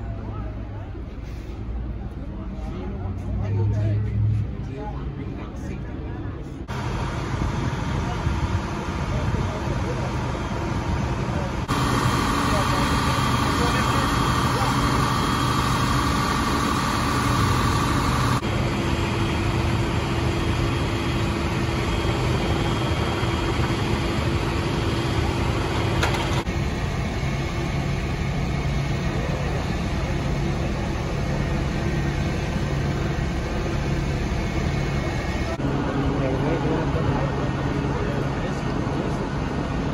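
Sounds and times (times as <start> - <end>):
street noise: 0.0 - 39.9
vehicle engines idling: 0.0 - 39.9.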